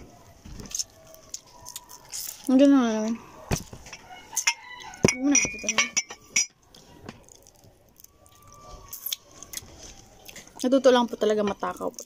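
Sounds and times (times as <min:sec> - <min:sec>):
tableware clinking: 0:03.8 - 0:06.6.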